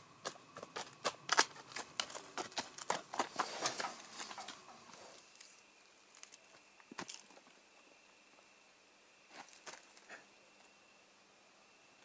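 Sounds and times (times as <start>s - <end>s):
donkey hooves on gravel: 0.0s - 7.6s.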